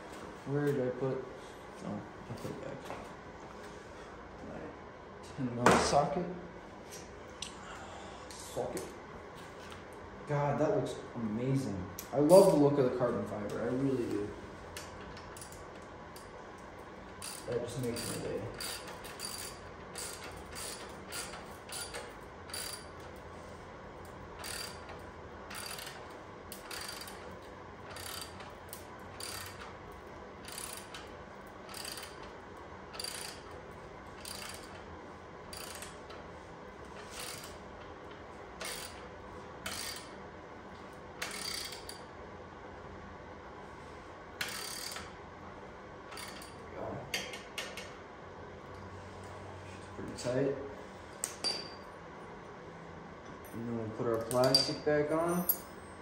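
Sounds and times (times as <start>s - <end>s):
hand ratchet clicking: 17.2s - 23.1s, 24.4s - 29.7s, 30.4s - 31.1s, 31.7s - 32.3s, 32.9s - 33.6s, 34.2s - 34.8s, 35.5s - 36.2s, 37.0s - 37.6s, 38.6s - 39.0s, 39.6s - 40.2s, 41.2s - 42.0s, 44.4s - 45.1s, 46.1s - 46.6s.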